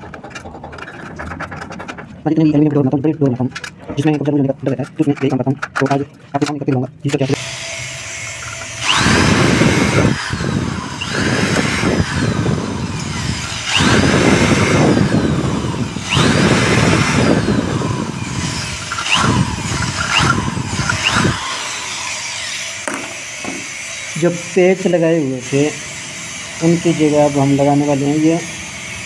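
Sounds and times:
electric drill boring through metal: 7.2 - 29.0.

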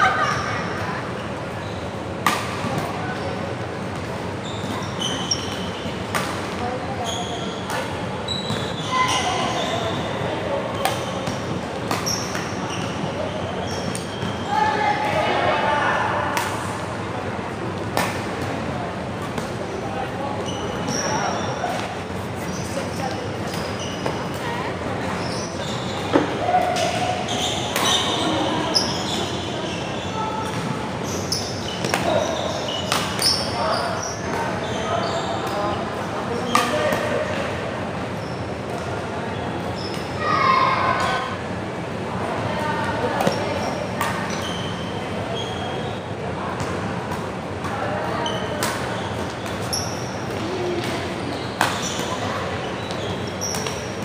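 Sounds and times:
racket hitting shuttlecock: 2.2 - 2.9, 32.9 - 33.3
shoe squeaks on court floor: 4.4 - 6.1, 7.0 - 14.6, 20.4 - 24.3, 25.1 - 37.0, 43.2 - 46.0, 48.2 - 54.0.

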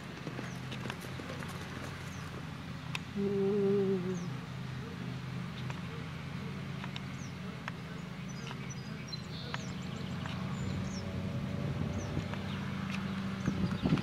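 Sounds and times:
horse hoofbeats on dirt: 0.0 - 2.6, 6.8 - 14.0
songbirds chirping: 0.0 - 14.0
steady low hum: 0.0 - 14.0.

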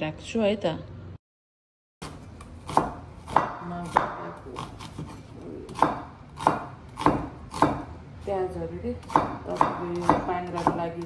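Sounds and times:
cleaver chopping on wooden board: 2.0 - 7.9, 9.0 - 11.0.

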